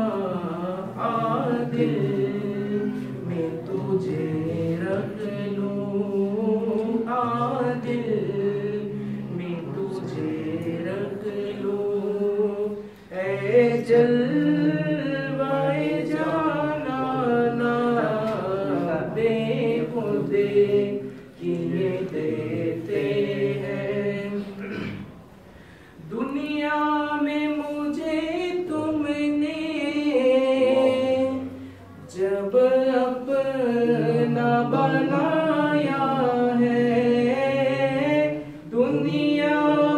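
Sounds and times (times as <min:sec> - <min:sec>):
men singing a chant: 0:00.0 - 0:24.8, 0:26.0 - 0:39.9.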